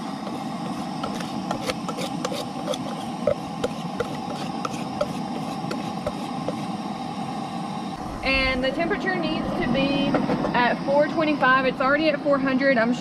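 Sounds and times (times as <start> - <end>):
whisk scraping metal saucepan: 0.2 - 6.7
steady rushing background: 7.9 - 11.8.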